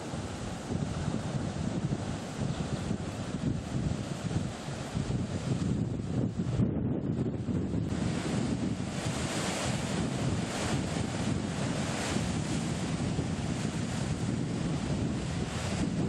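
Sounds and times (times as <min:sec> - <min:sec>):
wind buffeting microphone: 0:00.0 - 0:16.0
surf breaking over rocks: 0:07.8 - 0:16.0.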